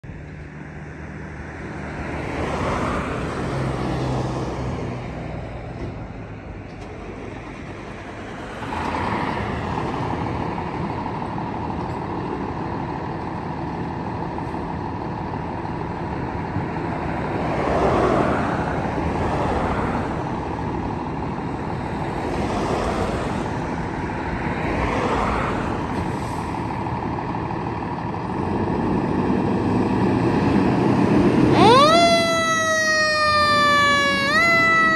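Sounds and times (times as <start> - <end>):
road traffic passing: 0.0 - 34.9
fire engine idling: 10.2 - 17.4, 20.3 - 22.2, 26.0 - 28.9, 31.5 - 34.9.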